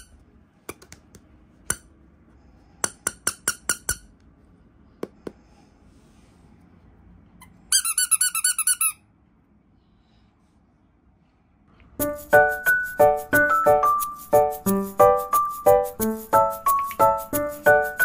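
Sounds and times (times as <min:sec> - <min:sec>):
squeaky rubber toy squeaking: 0:07.4 - 0:09.1.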